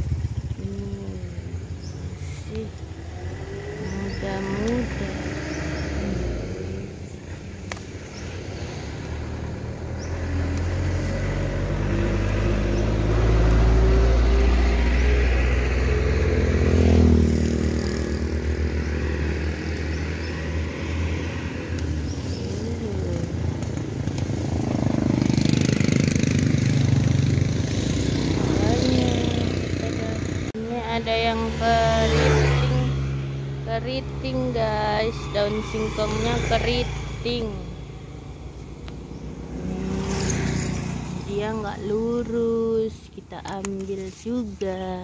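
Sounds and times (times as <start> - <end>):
vehicle engine passing by: 0.0 - 45.0.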